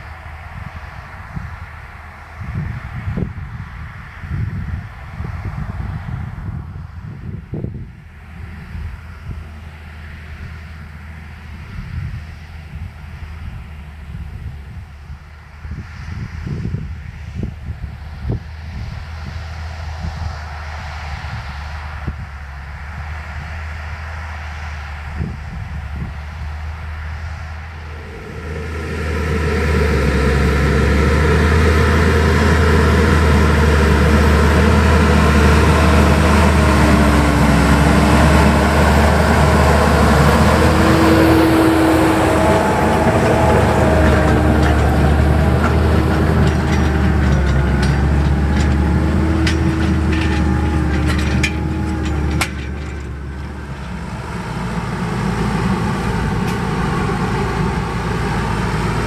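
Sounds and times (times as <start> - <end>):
tractor engine under load: 0.0 - 59.0.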